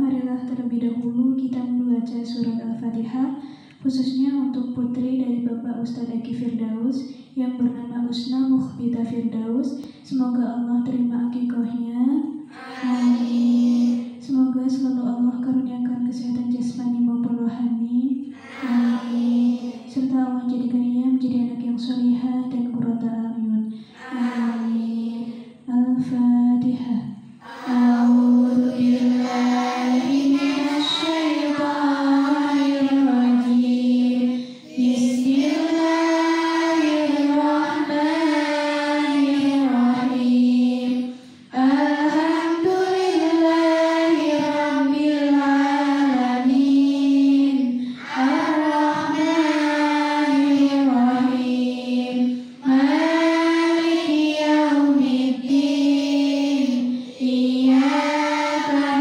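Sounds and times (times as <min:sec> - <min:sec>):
girls chanting in unison: 0:12.5 - 0:14.3, 0:18.4 - 0:20.1, 0:23.9 - 0:25.6, 0:27.4 - 0:59.0.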